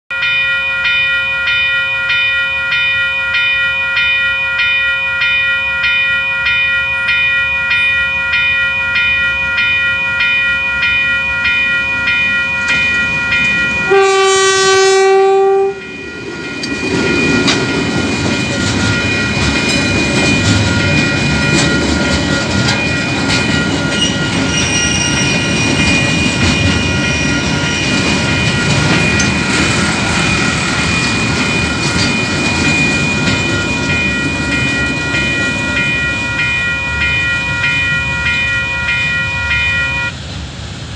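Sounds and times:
level crossing warning bells: 0.1 - 40.2
locomotive horn blast: 13.9 - 15.9
freight wagons rumbling past: 15.6 - 39.2.

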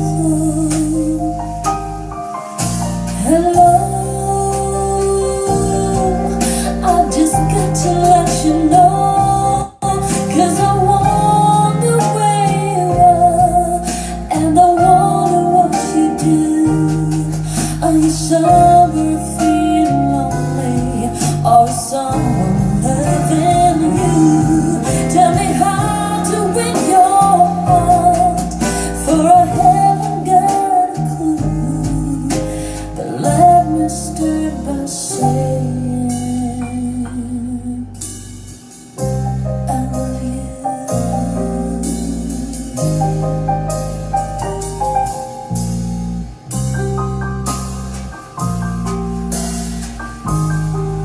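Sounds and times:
woman singing: 0.0 - 1.6, 3.1 - 38.5, 39.6 - 43.3
pop song over speakers: 0.0 - 38.8, 39.6 - 43.3.

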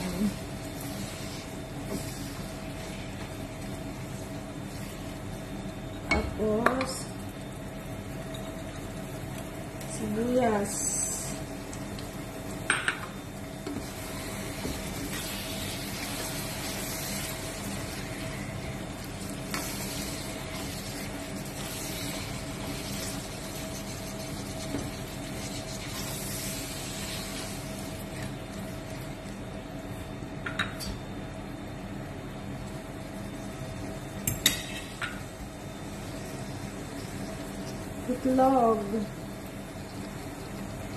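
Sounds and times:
light sizzle: 0.0 - 40.9
spatula stirring and scraping pan: 13.6 - 28.4.

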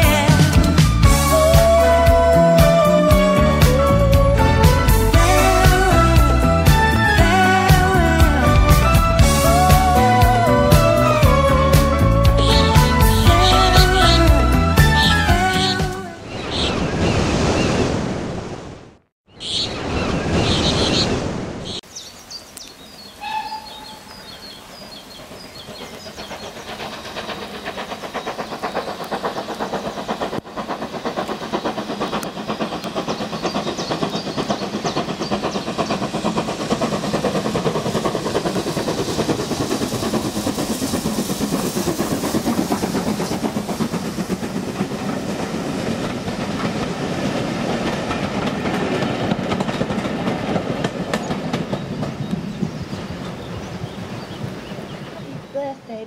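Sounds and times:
steam train passing: 0.0 - 18.5, 19.5 - 56.0
train wheels clattering on rails: 2.6 - 16.0, 23.7 - 55.8
bird chirps: 15.0 - 17.8, 19.3 - 26.9
rushing surf-like noise: 36.2 - 48.5.

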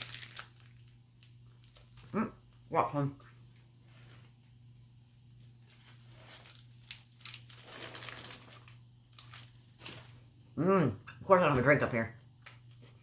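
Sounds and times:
plastic wrapper crinkling: 0.0 - 2.6, 5.4 - 10.3
steady low hum: 0.0 - 13.0.

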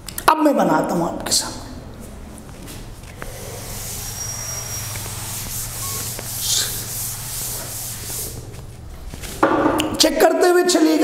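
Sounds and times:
duster rubbing on chalkboard: 3.1 - 9.4.

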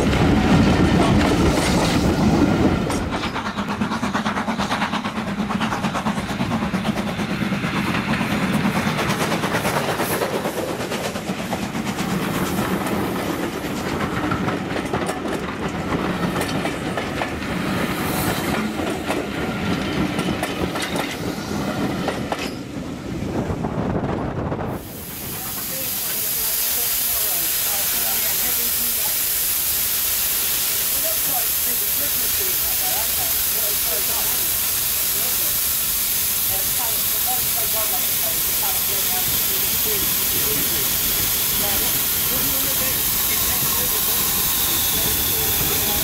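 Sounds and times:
train coaches rolling past: 0.0 - 46.0
wheels clicking over rail joints: 11.0 - 17.6.

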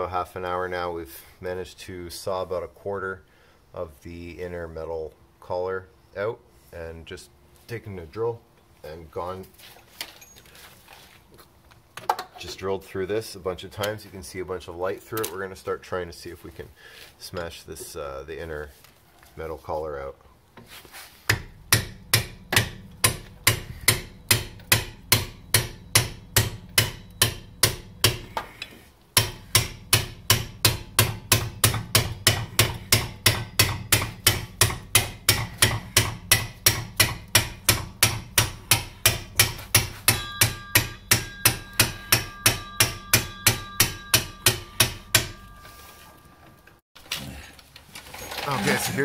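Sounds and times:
hammer blows on steel punch: 29.2 - 46.1
metallic ring: 39.9 - 46.8.

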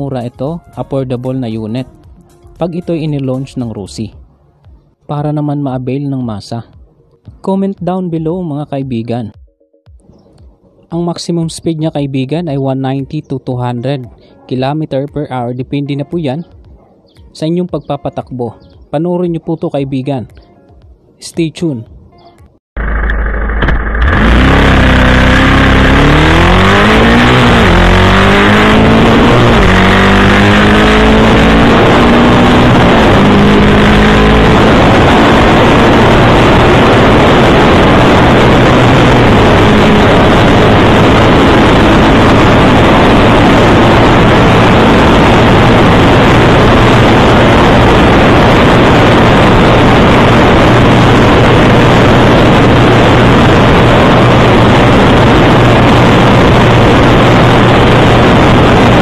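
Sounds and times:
motorcycle engine accelerating: 22.8 - 59.0
wind rushing on microphone: 26.3 - 59.0.

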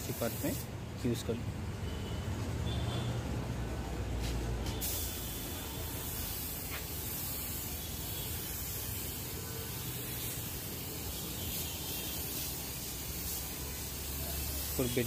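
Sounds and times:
spray gun hissing: 0.0 - 0.7, 4.7 - 15.0.

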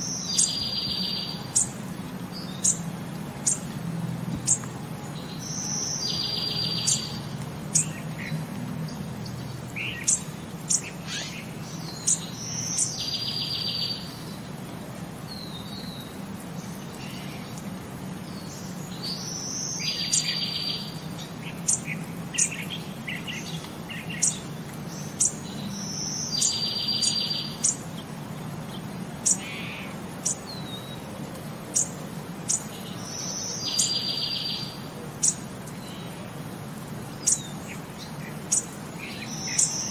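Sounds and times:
bird chirps and buzzy trill: 0.0 - 3.7, 4.4 - 14.4, 18.3 - 28.1, 31.7 - 36.2, 37.1 - 39.9.

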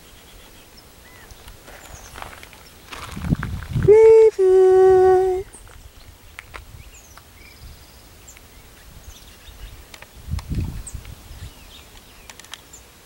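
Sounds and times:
songbird chirps: 0.0 - 3.6, 4.4 - 13.0
person sounding held notes: 3.8 - 5.6.

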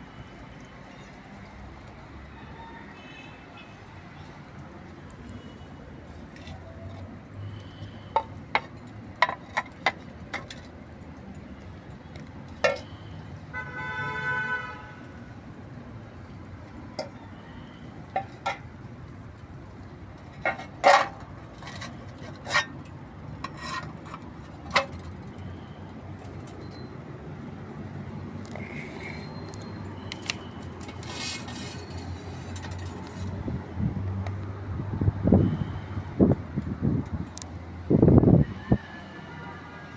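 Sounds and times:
vehicle horn: 13.5 - 15.2.

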